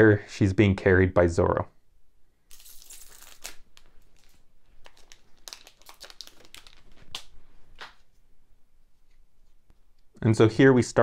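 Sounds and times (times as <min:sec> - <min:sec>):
wrapper crinkling and tearing: 0:02.5 - 0:08.0.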